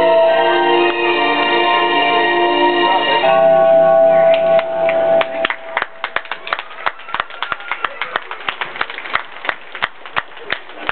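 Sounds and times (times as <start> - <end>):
audience clapping: 4.3 - 10.9.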